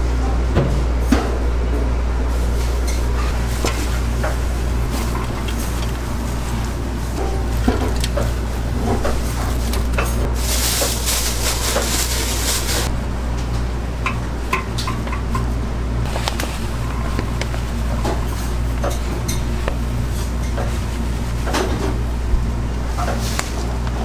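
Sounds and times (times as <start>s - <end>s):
kitchen machinery humming: 0.0s - 24.0s
bowls and utensils clattering: 2.8s - 12.9s, 16.1s - 22.0s.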